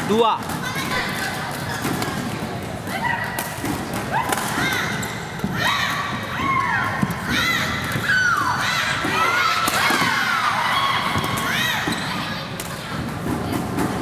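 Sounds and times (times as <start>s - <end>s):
shoes squeaking on court: 4.6s - 6.3s, 11.1s - 12.7s.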